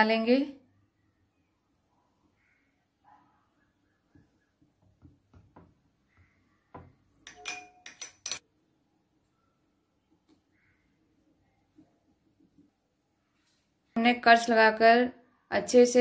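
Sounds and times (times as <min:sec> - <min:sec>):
spoon clinking against dish: 0:07.2 - 0:08.4.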